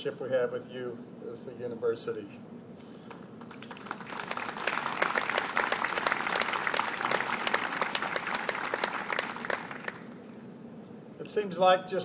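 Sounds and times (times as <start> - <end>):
audience applauding: 3.1 - 10.3.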